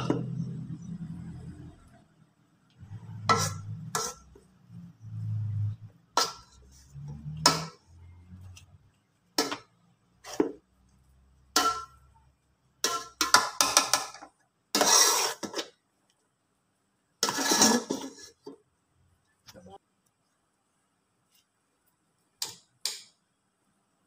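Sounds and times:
masher scraping pot: 0:02.8 - 0:08.7, 0:14.8 - 0:15.7, 0:17.2 - 0:18.4.

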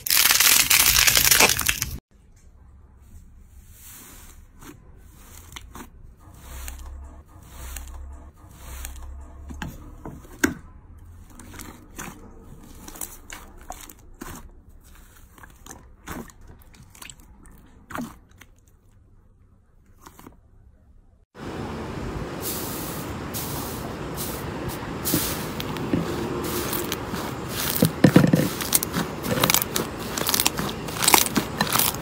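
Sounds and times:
hands squelching slime: 0:00.0 - 0:02.0, 0:11.0 - 0:19.1, 0:25.0 - 0:32.0
slime popping and crackling: 0:00.0 - 0:02.0, 0:27.6 - 0:32.0.

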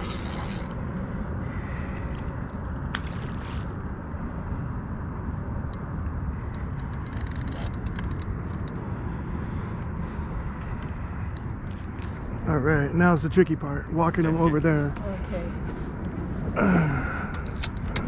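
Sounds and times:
fishing reel clicks: 0:00.0 - 0:00.8, 0:06.6 - 0:08.7.

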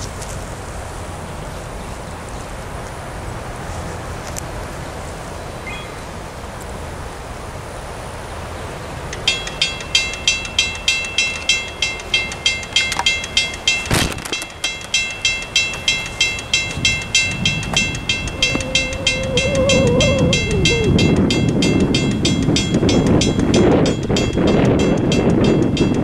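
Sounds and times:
approaching train rumble: 0:00.0 - 0:26.0
railroad crossing bell ringing: 0:09.2 - 0:26.0.

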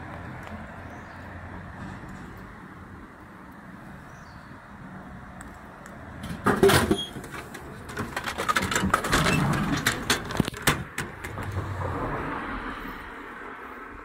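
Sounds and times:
plastic rattles: 0:06.2 - 0:11.7.

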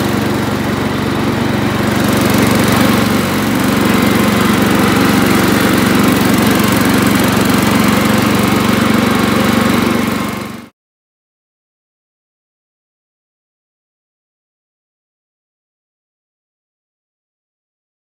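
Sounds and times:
garden tractor engine running: 0:00.0 - 0:10.7.

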